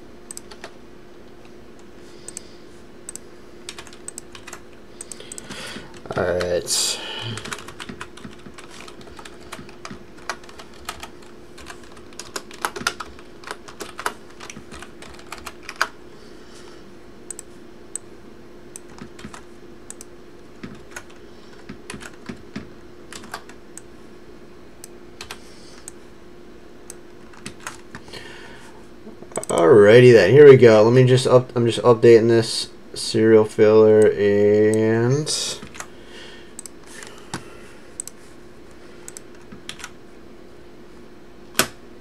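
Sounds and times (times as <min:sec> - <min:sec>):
faint steady hum: 0:00.0 - 0:42.0
typing on computer keyboard: 0:03.7 - 0:06.5, 0:07.4 - 0:15.9, 0:18.8 - 0:23.6, 0:39.1 - 0:39.9.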